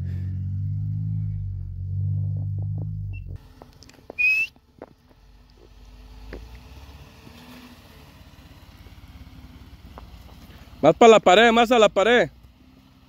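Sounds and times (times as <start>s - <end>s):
vehicle engine running: 0.0s - 13.0s
short rising whistle: 4.2s - 4.6s.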